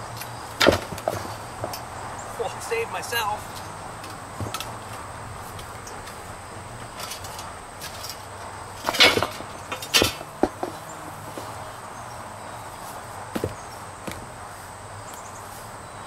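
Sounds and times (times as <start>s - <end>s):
insect buzz: 0.0s - 16.0s
hand truck knocking and scraping: 0.1s - 2.3s, 3.4s - 11.8s, 13.3s - 14.4s.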